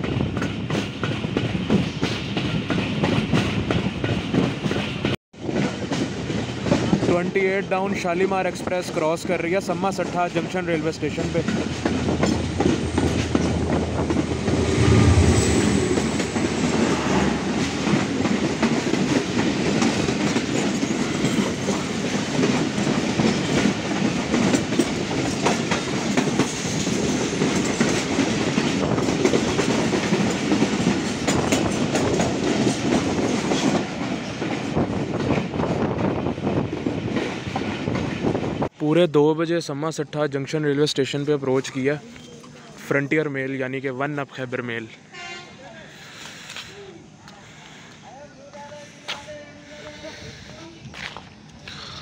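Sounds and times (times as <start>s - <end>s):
train wheels clacking over rail joints: 0.0s - 36.2s
diesel locomotive engine humming: 8.6s - 35.1s.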